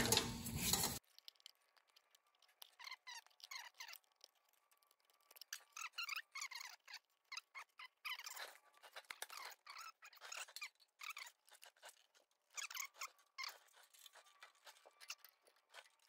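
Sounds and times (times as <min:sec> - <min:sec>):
metal parts and tools clicking: 0:00.0 - 0:01.4.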